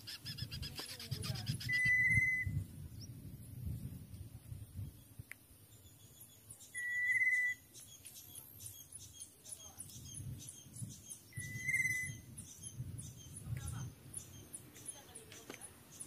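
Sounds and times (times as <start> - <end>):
bird rattling call: 0.0 - 2.4
bird whistled notes: 0.1 - 2.6, 5.8 - 13.4.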